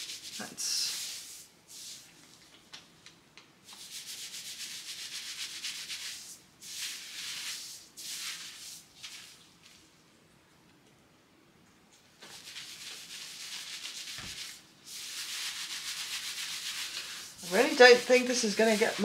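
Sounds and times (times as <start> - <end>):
fingers scrubbing wet hair: 0.0 - 2.1, 12.3 - 19.0.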